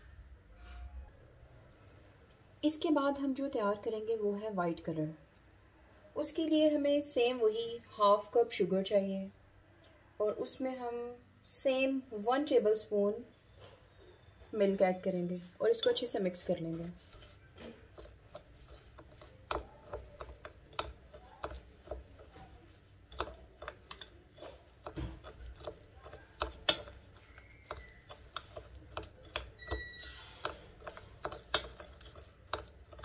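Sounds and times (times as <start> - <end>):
spoon stirring glaze in bowl: 15.1 - 33.0
spoon tapping ceramic bowl: 15.7 - 22.4, 23.1 - 33.0.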